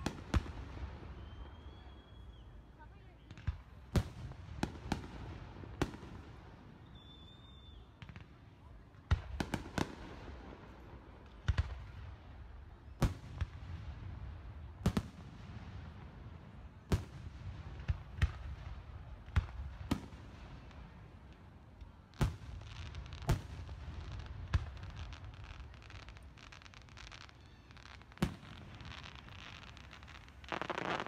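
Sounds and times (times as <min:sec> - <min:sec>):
firework shells bursting: 0:26.1 - 0:31.0.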